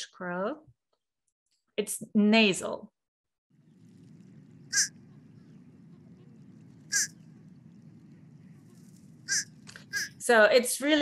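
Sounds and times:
crow calling: 0:04.6 - 0:07.5, 0:08.5 - 0:10.2.

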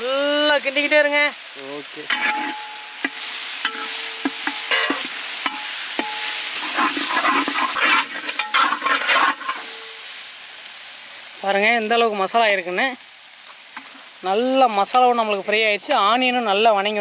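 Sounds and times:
frying sizzle: 0:00.0 - 0:17.0
ladle knocking pan ringing: 0:02.1 - 0:06.6
ladle scraping metal pan: 0:02.1 - 0:10.0.

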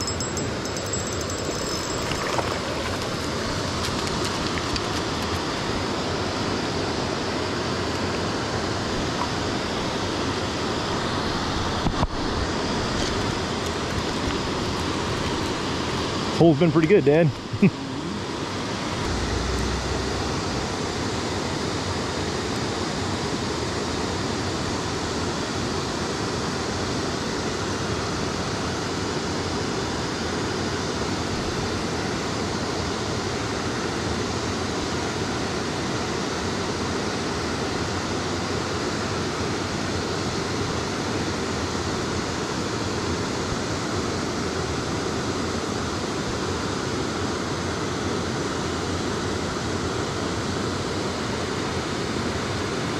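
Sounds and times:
stream water flowing: 0:00.0 - 0:16.3.

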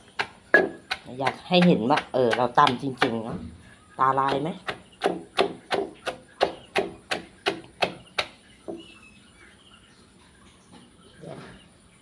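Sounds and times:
pestle pounding in mortar: 0:00.0 - 0:03.4, 0:04.1 - 0:08.8.

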